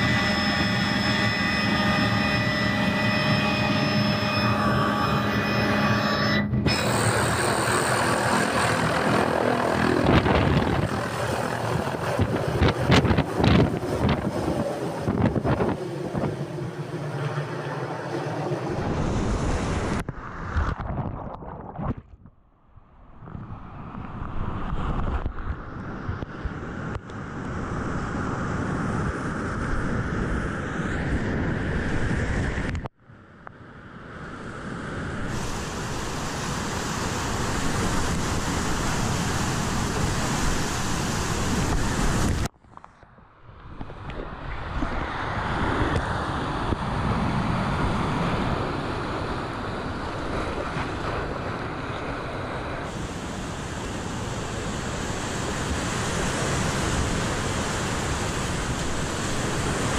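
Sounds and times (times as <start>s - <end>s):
helicopter rotor turning: 0.0s - 20.0s
wind buffeting microphone: 6.6s - 16.8s, 43.4s - 59.9s
rushing whitewater: 35.3s - 42.4s, 45.0s - 59.9s.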